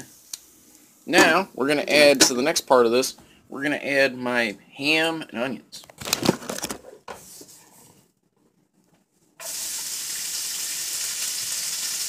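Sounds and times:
food sizzling in a frying pan: 0:09.4 - 0:12.0.

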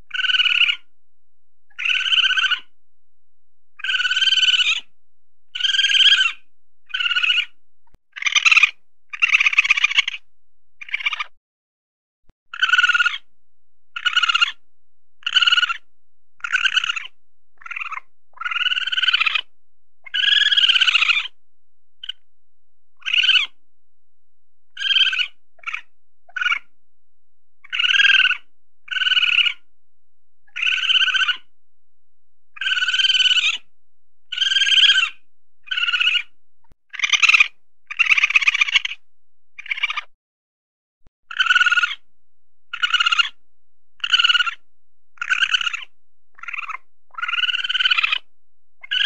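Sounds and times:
weasel high-pitched cries: 0:00.1 - 0:00.9, 0:01.7 - 0:02.8, 0:03.8 - 0:04.9, 0:05.6 - 0:10.2, 0:10.8 - 0:11.4, 0:12.5 - 0:13.3, 0:13.9 - 0:14.6, 0:15.2 - 0:21.4, 0:22.0 - 0:22.2, 0:23.0 - 0:23.6, 0:24.7 - 0:26.7, 0:27.6 - 0:29.7, 0:30.5 - 0:31.5, 0:32.6 - 0:33.7, 0:34.3 - 0:36.3, 0:36.9 - 0:39.0, 0:39.6 - 0:40.1, 0:41.3 - 0:42.1, 0:42.7 - 0:43.4, 0:44.0 - 0:44.6, 0:45.2 - 0:49.0.

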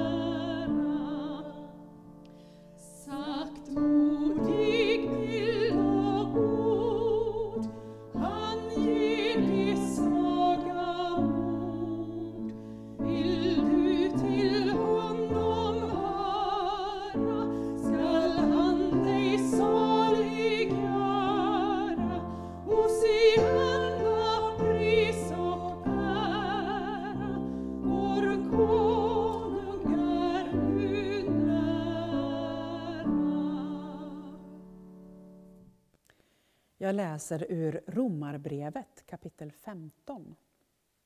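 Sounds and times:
person singing hymn with vibrato: 0:00.0 - 0:01.8, 0:02.8 - 0:34.6.

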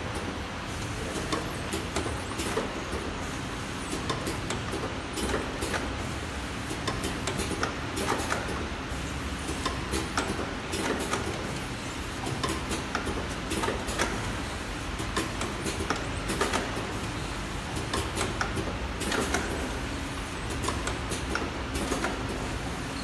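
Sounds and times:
machine conveyor hum: 0:00.0 - 0:23.0
irregular machine clicks: 0:03.9 - 0:06.0, 0:06.7 - 0:08.7, 0:09.4 - 0:11.6, 0:12.2 - 0:14.4, 0:15.0 - 0:19.8, 0:20.4 - 0:22.6.

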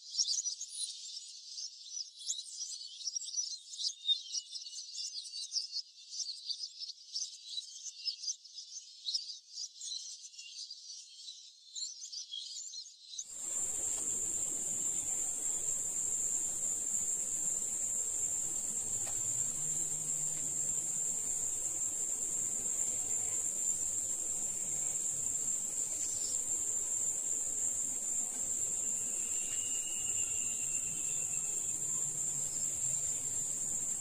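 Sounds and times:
insect chorus trilling: 0:13.4 - 0:34.0
varied insect chirping: 0:13.4 - 0:34.0.

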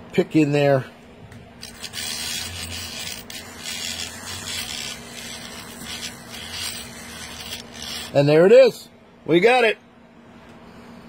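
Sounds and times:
steady motor hum: 0:01.0 - 0:09.2
blade rasping against lock pins: 0:01.6 - 0:08.2.

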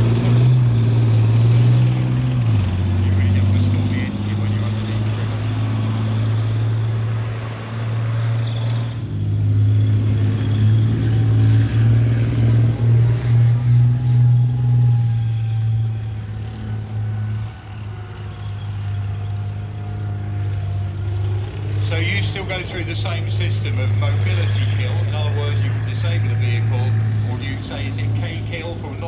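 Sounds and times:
tank diesel engine droning: 0:00.0 - 0:29.0.

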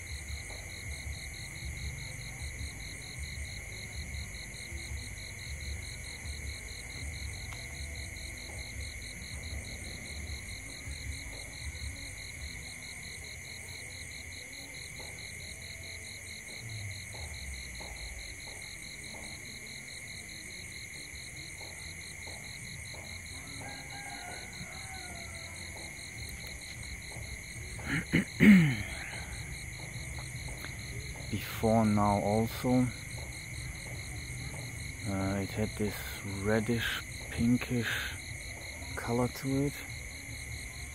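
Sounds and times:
insects trilling: 0:00.0 - 0:40.9.

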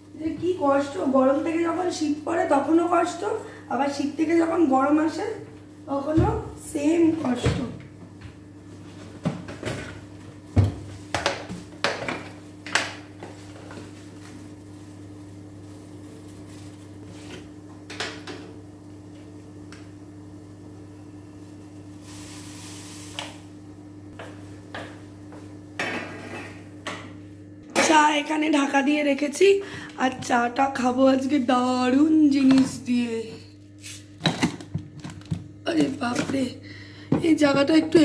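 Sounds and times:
steady low hum: 0:13.0 - 0:38.0.

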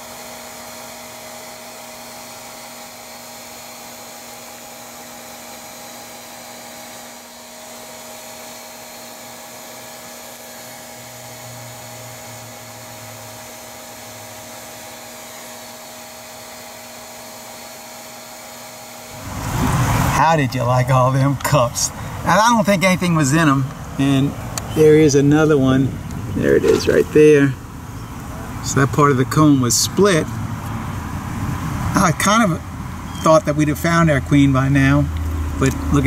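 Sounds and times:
vacuum motor whine: 0:00.0 - 0:36.0
rush of air: 0:19.1 - 0:20.4.

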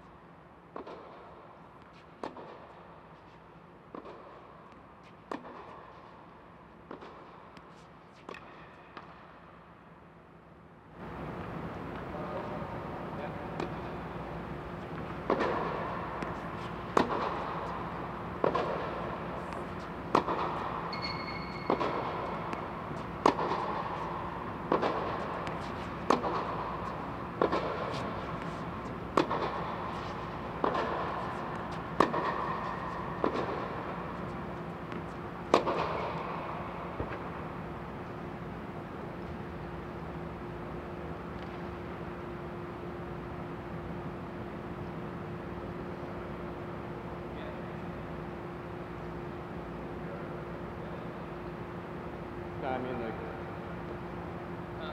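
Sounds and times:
steady low hum: 0:00.0 - 0:54.9
tennis ball hit by racket: 0:01.8 - 0:02.8, 0:05.0 - 0:06.1, 0:06.9 - 0:09.2, 0:13.5 - 0:37.5.

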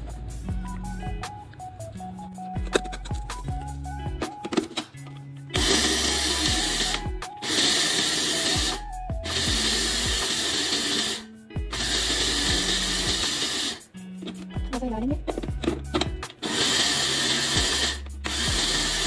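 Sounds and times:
electric grinder grinding spices: 0:05.6 - 0:13.9, 0:15.7 - 0:19.0.

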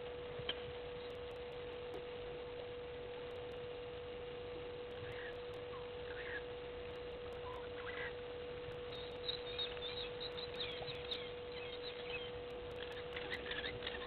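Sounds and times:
steady even hum: 0:00.0 - 0:14.0
faint bird calls: 0:04.9 - 0:14.0.

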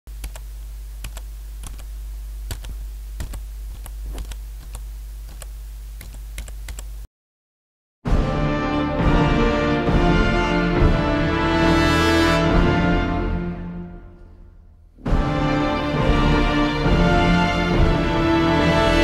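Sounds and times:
steady low hum: 0:00.1 - 0:07.1
keyboard typing: 0:00.2 - 0:01.9, 0:02.5 - 0:06.9
music: 0:08.1 - 0:19.0.

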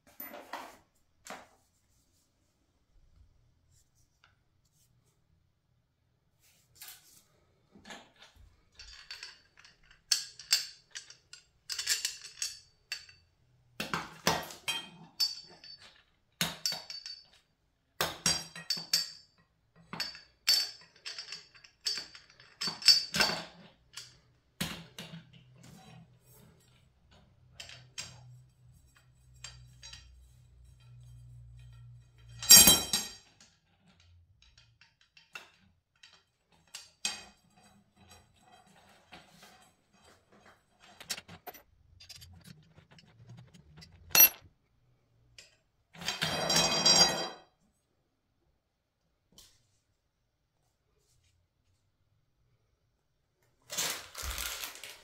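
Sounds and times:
steel tubes clinking and knocking: 0:07.9 - 0:13.3, 0:14.0 - 0:24.3, 0:25.0 - 0:44.5.

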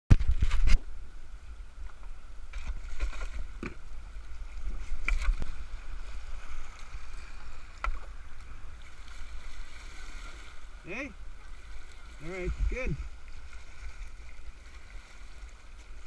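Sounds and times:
paddle knocks and splashes: 0:01.9 - 0:05.7, 0:06.7 - 0:08.2
river water rushing and splashing: 0:02.2 - 0:16.0.

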